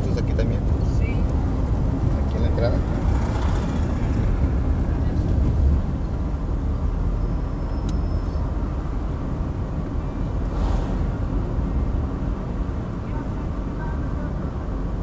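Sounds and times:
car engine and tyres rumbling: 0:00.0 - 0:15.0
brief hiss: 0:10.5 - 0:11.1.

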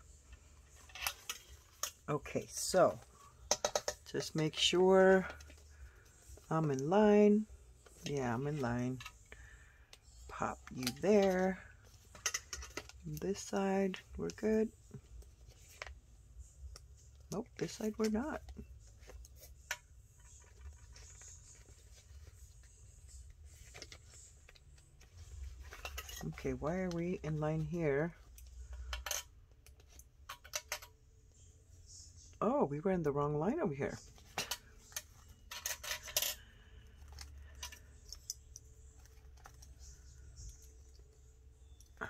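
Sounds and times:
paper rustling: 0:20.2 - 0:26.9.

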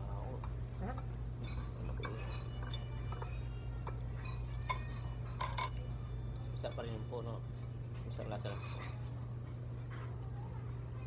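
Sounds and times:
steady low hum: 0:00.0 - 0:11.0
chopsticks clinking on dishes: 0:00.3 - 0:05.9, 0:06.6 - 0:09.4.

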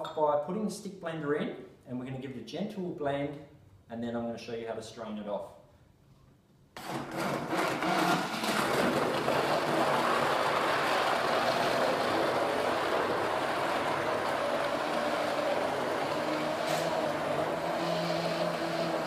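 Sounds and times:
stick blender churning liquid: 0:06.8 - 0:19.0.

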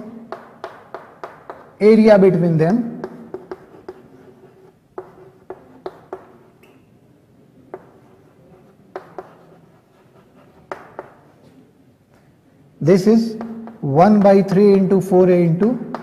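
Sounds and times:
chalk tapping on blackboard: 0:00.3 - 0:01.8, 0:03.0 - 0:06.8, 0:07.7 - 0:11.6, 0:13.3 - 0:14.9, 0:15.8 - 0:16.0
chalk scratching: 0:03.0 - 0:06.7, 0:07.7 - 0:11.6.

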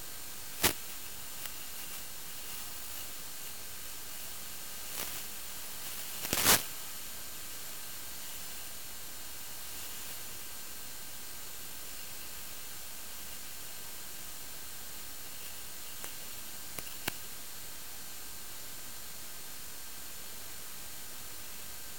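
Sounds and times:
static crackles: 0:00.0 - 0:17.4
static hiss: 0:00.0 - 0:21.9.

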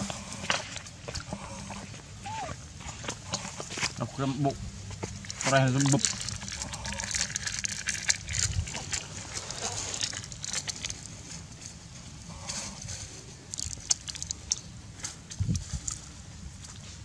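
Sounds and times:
plastic bag crinkling: 0:05.1 - 0:11.8, 0:12.8 - 0:14.6.

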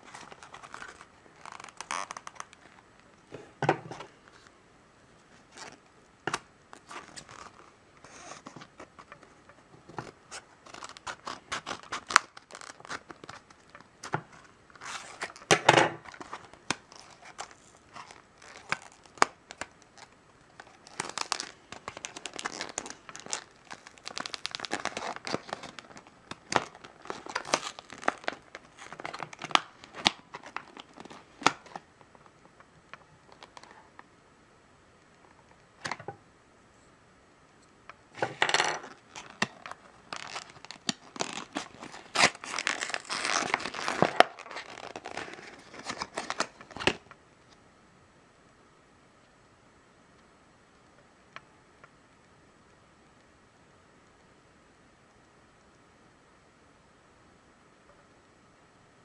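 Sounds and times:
packaging crinkling and tearing: 0:00.0 - 0:02.8, 0:05.4 - 0:09.3, 0:09.9 - 0:32.3, 0:32.9 - 0:34.0, 0:38.2 - 0:47.1.

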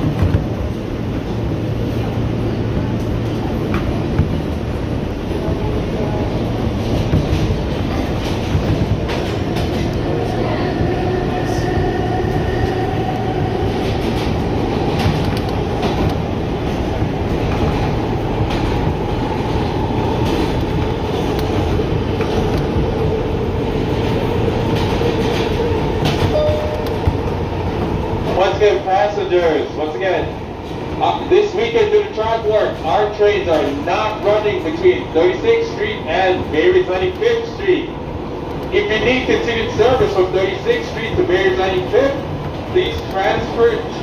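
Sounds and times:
wheels rumbling on rail: 0:00.0 - 0:44.0
rail joint clicks: 0:06.6 - 0:28.9, 0:35.6 - 0:44.0.

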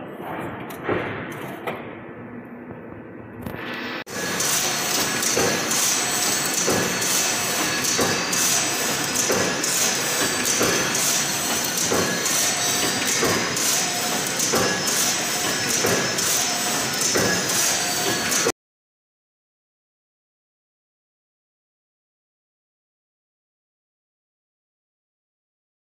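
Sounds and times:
mechanical clatter: 0:04.2 - 0:18.5.

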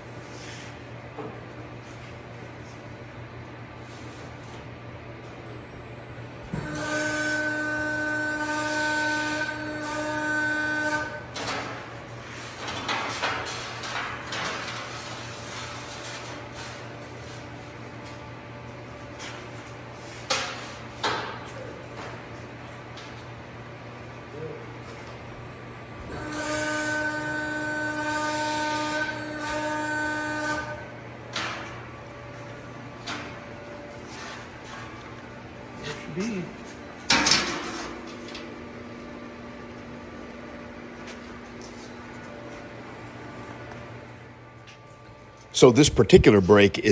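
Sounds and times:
press brake machine whine: 0:04.5 - 0:12.7, 0:22.4 - 0:46.9.

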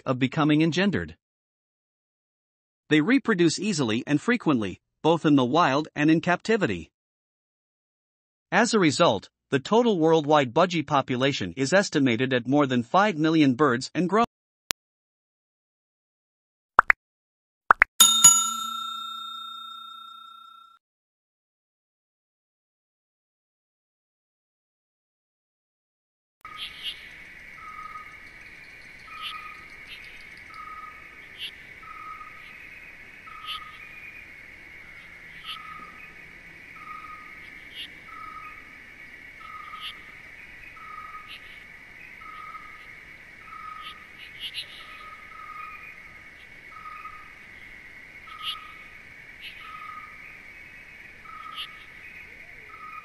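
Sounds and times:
short high chirps: 0:18.0 - 0:20.5.

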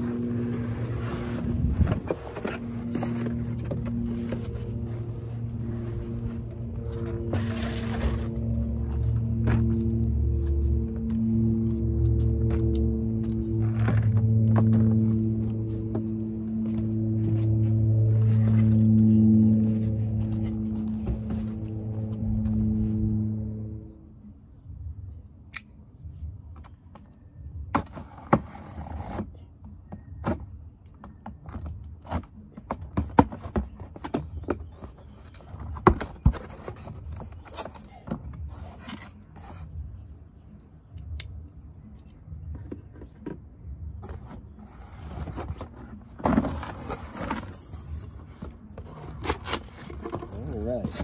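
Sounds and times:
cardboard rustling and scraping: 0:00.0 - 0:23.3, 0:31.5 - 0:39.8, 0:44.0 - 0:51.0.

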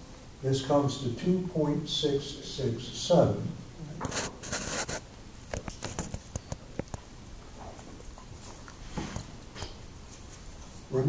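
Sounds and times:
marker scratching on whiteboard: 0:04.1 - 0:05.0.

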